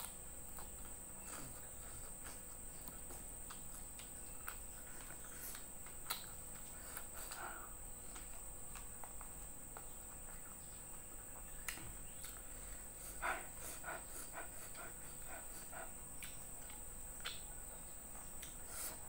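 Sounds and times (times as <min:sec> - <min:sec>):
person chewing food: 0:00.0 - 0:19.0
wet mouth smacks: 0:02.9 - 0:07.4.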